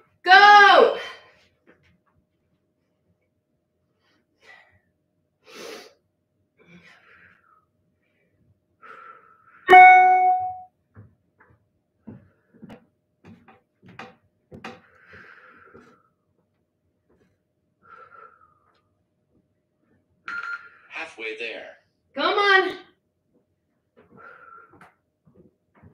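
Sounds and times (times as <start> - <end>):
ringing tone: 9.7 - 10.6
person breathing hard: 14.8 - 16.2.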